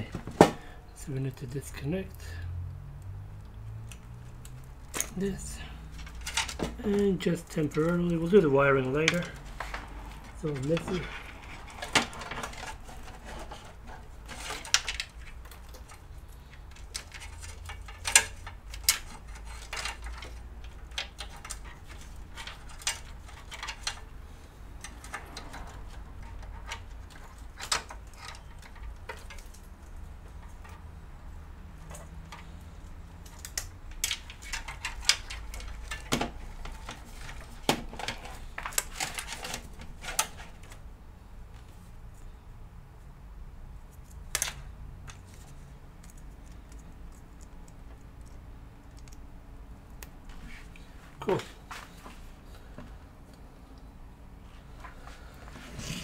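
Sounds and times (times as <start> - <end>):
cables and plastic connectors rattling: 3.8 - 40.9.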